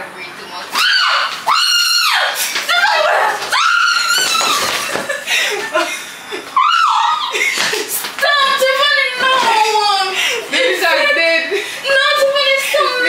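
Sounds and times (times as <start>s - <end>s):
woman screaming: 0.7s - 4.9s, 6.6s - 7.4s
laughter: 4.7s - 6.5s, 7.2s - 8.0s.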